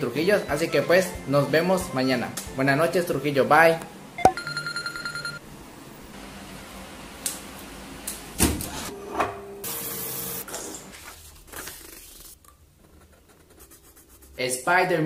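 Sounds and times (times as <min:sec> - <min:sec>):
phone alarm beeping: 0:04.2 - 0:05.4.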